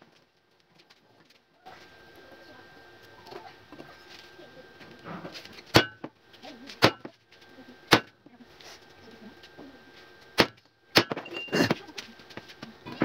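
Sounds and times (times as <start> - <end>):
hammer striking steel: 5.7 - 6.0.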